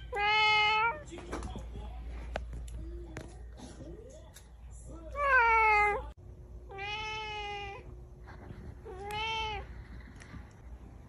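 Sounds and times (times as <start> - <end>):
cat meowing: 0.0 - 1.0, 5.2 - 6.0, 6.7 - 7.8, 8.9 - 9.7.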